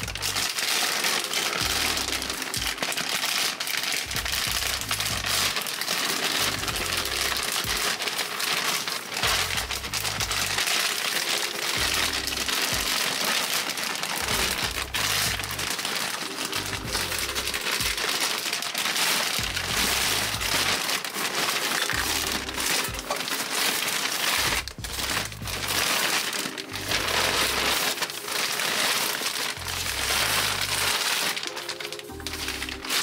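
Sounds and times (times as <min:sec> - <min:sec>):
background music with bass: 0:00.0 - 0:00.6, 0:01.6 - 0:02.9, 0:04.0 - 0:05.6, 0:06.3 - 0:07.9, 0:09.2 - 0:10.6, 0:11.7 - 0:13.0, 0:14.2 - 0:15.7, 0:16.4 - 0:18.1, 0:19.4 - 0:20.9, 0:21.9 - 0:23.2, 0:24.4 - 0:25.9, 0:26.6 - 0:27.8, 0:29.6 - 0:31.0, 0:32.1 - 0:33.0
plastic bag crinkling: 0:00.0 - 0:33.0
plastic being torn open: 0:00.0 - 0:33.0.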